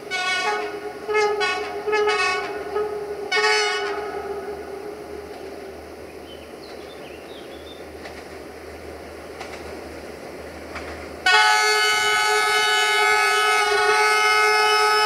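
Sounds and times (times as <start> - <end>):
locomotive air horn: 0.0 - 5.0, 11.2 - 15.0
diesel locomotive engine: 0.0 - 15.0.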